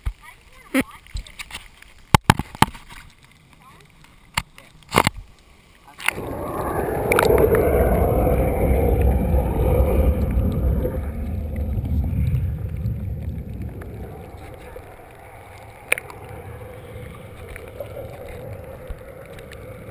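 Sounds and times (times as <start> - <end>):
hot tub jets churning underwater: 6.0 - 19.9.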